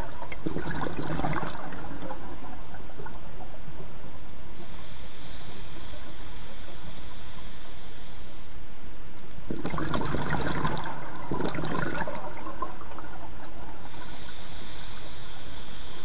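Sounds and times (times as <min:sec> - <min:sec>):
underwater breath bubbling: 0:00.0 - 0:03.2, 0:09.5 - 0:16.0
underwater hiss: 0:00.0 - 0:16.0.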